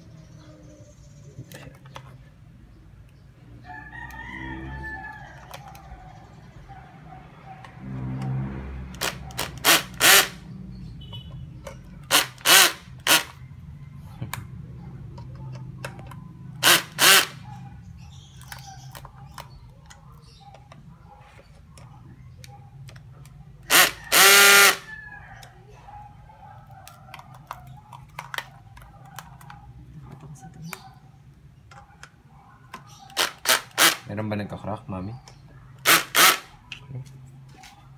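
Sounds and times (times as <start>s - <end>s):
cordless drill drilling into wall: 9.0s - 10.4s, 12.1s - 13.3s, 16.6s - 17.4s, 23.7s - 24.8s, 33.2s - 34.0s, 35.8s - 36.5s.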